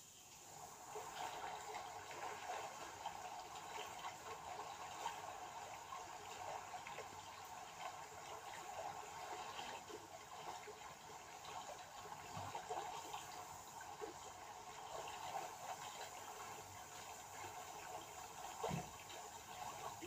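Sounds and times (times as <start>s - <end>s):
trickling bubbling water: 0.3s - 20.0s.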